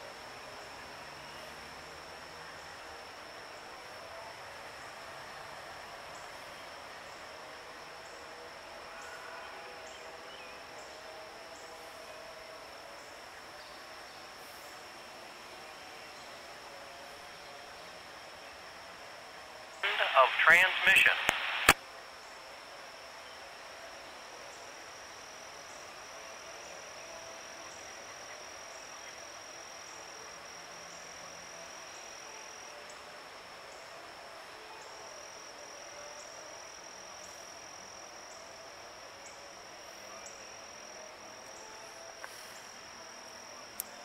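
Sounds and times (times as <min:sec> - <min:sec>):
quiet outdoor hiss: 0:00.0 - 0:44.0
insects trilling: 0:24.0 - 0:44.0.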